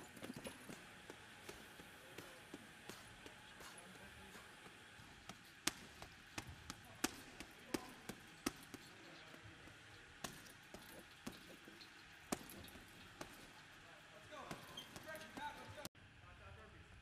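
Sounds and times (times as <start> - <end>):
gloves punching heavy bag: 0.0 - 15.9.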